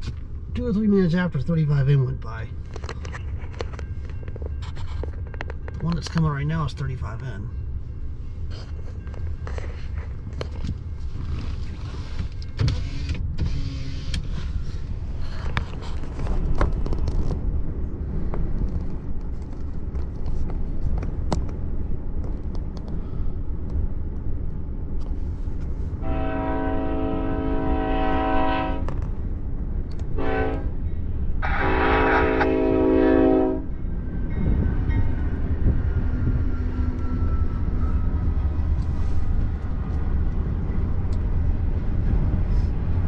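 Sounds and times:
locomotive air horn blasts: 0:26.0 - 0:28.9, 0:30.2 - 0:30.8, 0:31.4 - 0:33.7.

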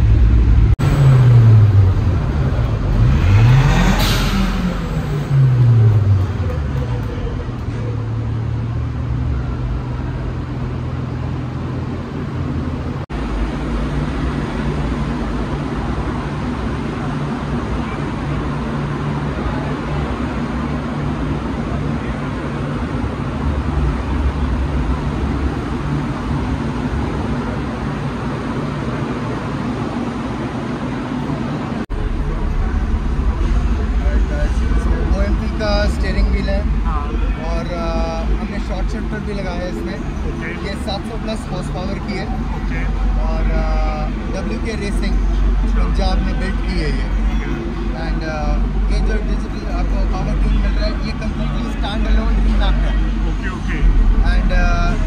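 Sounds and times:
car engines idling: 0:00.0 - 0:55.0
traffic noise: 0:00.0 - 0:55.0
voices: 0:02.0 - 0:11.2, 0:26.5 - 0:55.0.

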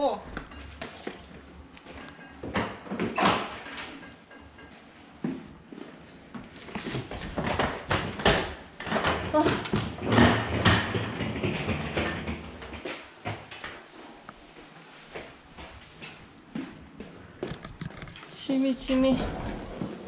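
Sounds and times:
suitcases knocking and rustling: 0:06.8 - 0:13.6.

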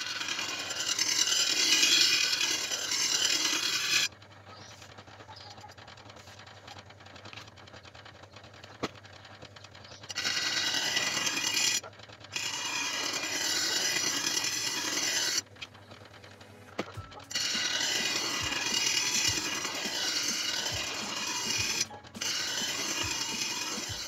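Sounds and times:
steel grinding on abrasive wheel: 0:00.0 - 0:04.8, 0:09.9 - 0:15.5, 0:16.9 - 0:24.0.

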